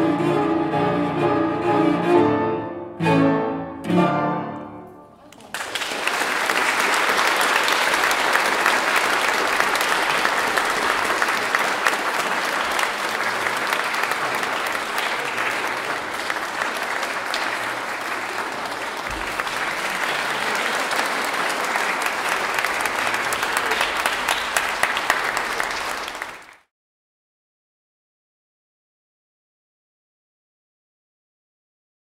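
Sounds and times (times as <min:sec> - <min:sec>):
audience applauding: 0:05.2 - 0:26.7.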